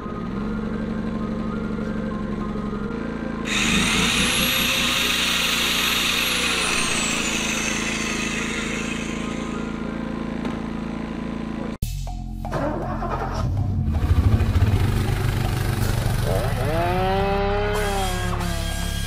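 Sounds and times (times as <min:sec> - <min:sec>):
generator engine humming: 0:00.1 - 0:11.8
circular saw motor whine: 0:03.4 - 0:11.8, 0:16.3 - 0:19.0.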